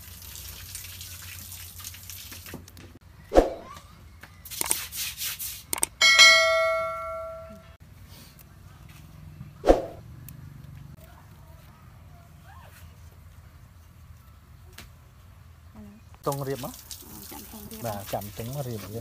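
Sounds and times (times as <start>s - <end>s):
notification bell ding: 6.0s - 7.7s.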